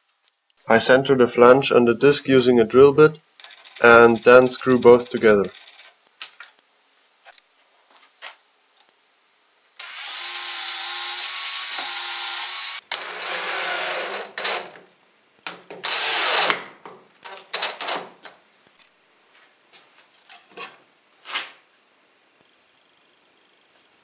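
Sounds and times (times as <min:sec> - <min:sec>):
cordless drill driving screws: 0:09.8 - 0:14.7, 0:15.8 - 0:16.6.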